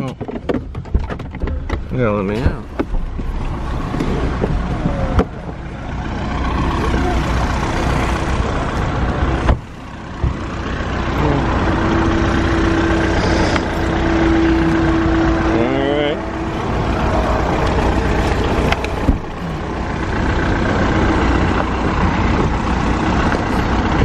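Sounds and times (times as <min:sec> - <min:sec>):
car engines idling: 0:00.0 - 0:24.0
steady droning engine: 0:00.0 - 0:24.0
street traffic: 0:00.0 - 0:24.0
car door knocking shut: 0:09.4 - 0:10.4.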